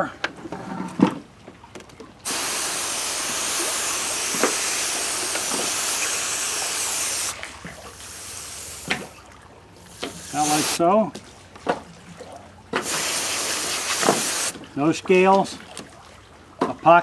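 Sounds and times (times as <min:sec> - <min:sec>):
hose spraying water: 0:02.2 - 0:09.2, 0:09.8 - 0:10.8, 0:12.8 - 0:14.6
water washing: 0:02.2 - 0:10.8, 0:12.8 - 0:14.8.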